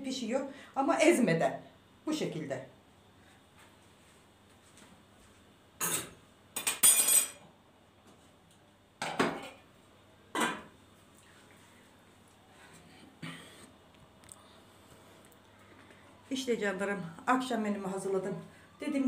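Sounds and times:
kitchenware clinking and knocking: 5.8s - 7.4s, 9.0s - 9.6s.

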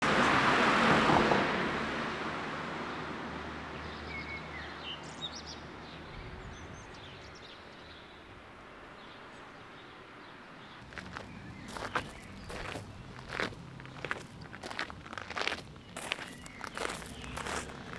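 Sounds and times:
bird chirps: 15.7s - 17.9s.

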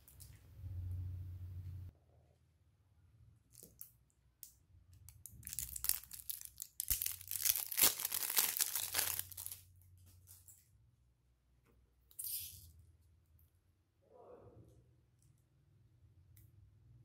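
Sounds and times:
plastic wrapping crinkling: 5.1s - 10.5s.

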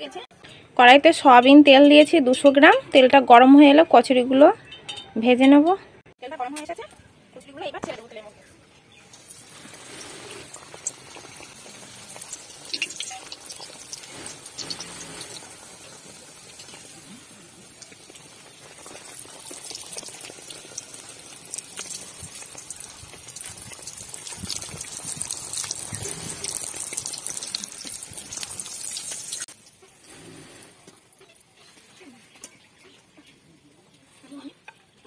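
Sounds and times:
food deep-frying in oil: 8.9s - 31.5s.

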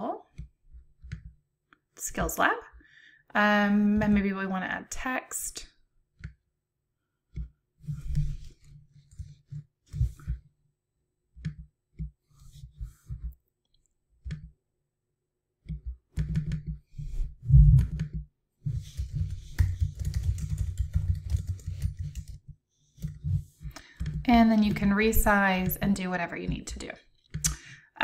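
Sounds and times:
typing on computer keyboard: 18.9s - 22.4s.

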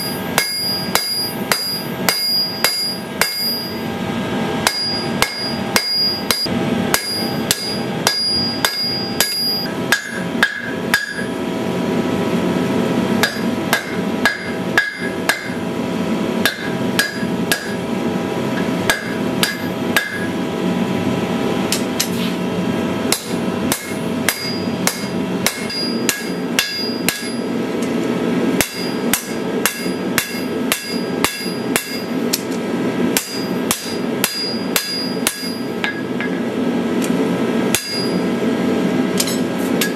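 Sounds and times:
hammer ringing on anvil: 0.0s - 3.8s, 4.6s - 11.4s, 13.2s - 15.6s, 16.4s - 17.8s, 18.6s - 20.3s, 23.1s - 27.5s, 28.6s - 32.1s, 33.2s - 36.4s, 37.7s - 38.3s
steady low rush: 0.0s - 21.8s.

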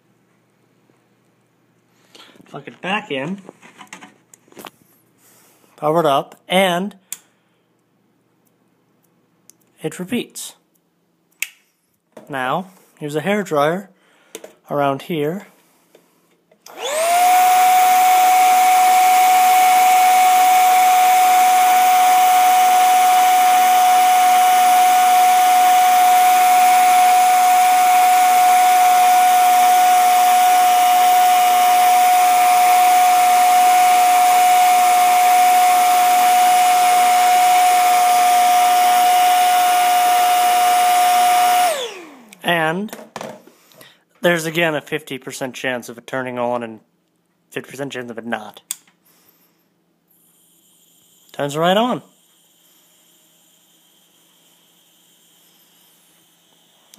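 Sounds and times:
hair dryer motor whine: 16.7s - 42.4s, 50.2s - 56.9s.

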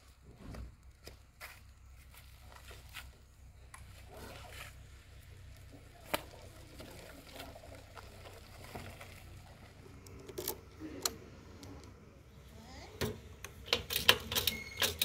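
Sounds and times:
motorcycle handling noises: 10.0s - 12.0s, 13.0s - 15.0s.

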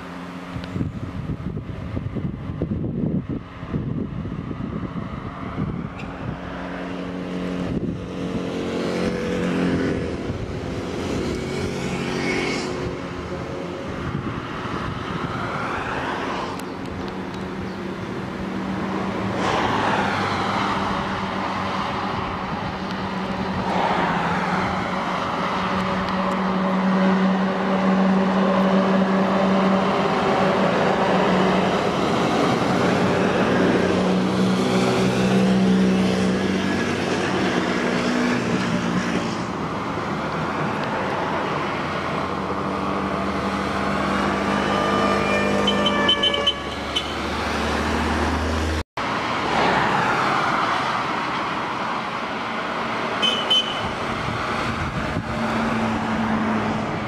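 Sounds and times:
vehicles driving past: 0.0s - 57.0s.

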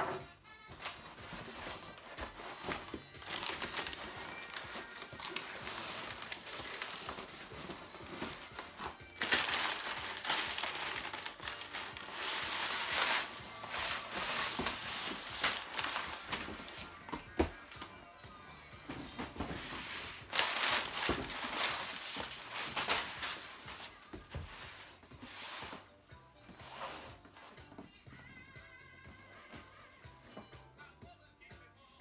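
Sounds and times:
packing paper rustling and crinkling: 0.7s - 17.5s, 18.9s - 25.8s.

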